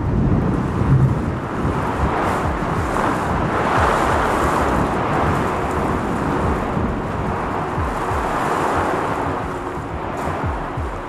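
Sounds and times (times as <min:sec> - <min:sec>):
heavy rain and wind on roof: 0:00.0 - 0:11.0.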